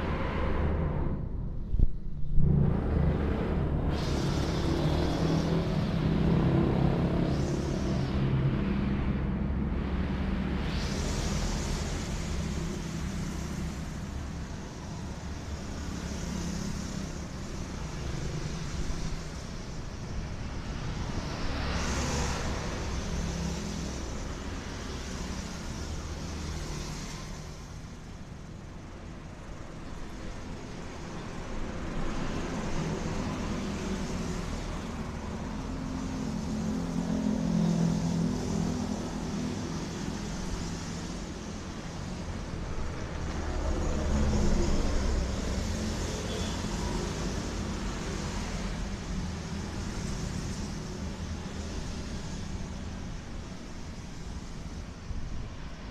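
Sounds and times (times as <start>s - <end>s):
road traffic passing: 0.0s - 55.9s
loud engine hum: 2.3s - 19.4s, 30.6s - 52.7s.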